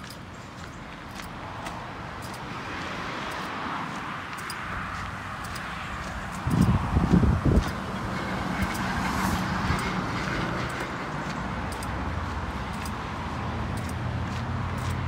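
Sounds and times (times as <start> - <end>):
cars driving past: 0.0 - 15.0.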